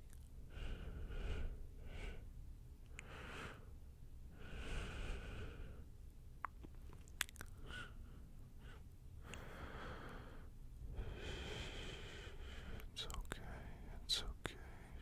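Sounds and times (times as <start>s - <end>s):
person whispering: 12.8s - 15.0s.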